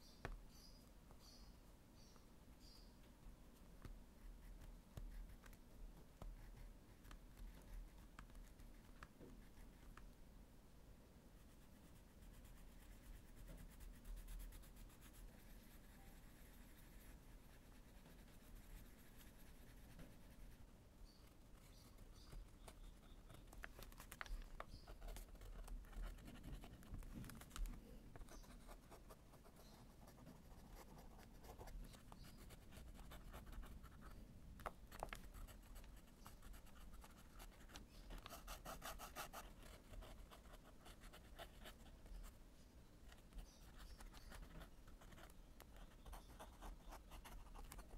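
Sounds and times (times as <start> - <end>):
pencil scratching on paper: 34.9 - 42.3.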